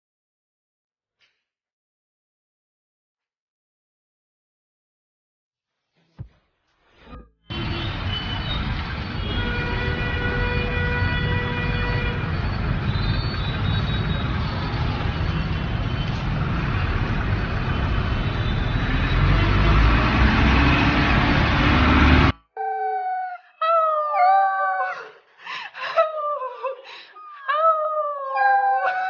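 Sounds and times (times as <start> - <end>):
vehicle horn: 7.5 - 14.9, 18.2 - 20.6
van passing close: 7.5 - 22.3
vehicle engines running: 7.5 - 22.3.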